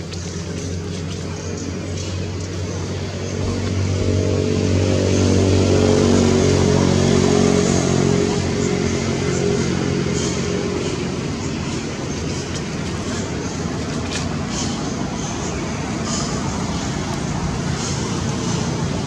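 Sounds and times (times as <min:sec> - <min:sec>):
vehicle engine humming: 0:00.0 - 0:19.0.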